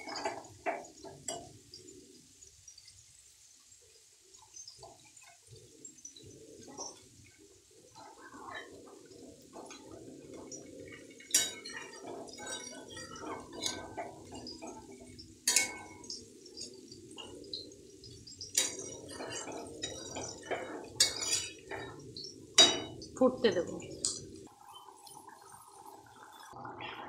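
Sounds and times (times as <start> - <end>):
spatula clinking on pan: 9.6 - 23.2.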